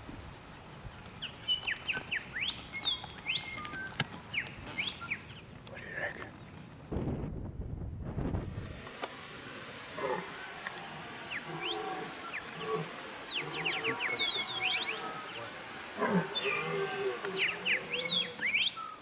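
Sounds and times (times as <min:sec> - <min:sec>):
bird chirps: 0:01.2 - 0:05.4, 0:09.0 - 0:19.0
insects chirring: 0:08.3 - 0:19.0.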